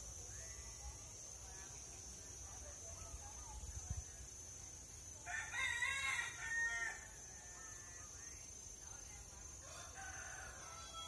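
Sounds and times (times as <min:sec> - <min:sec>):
rooster crowing: 0:05.2 - 0:07.3, 0:09.6 - 0:11.0.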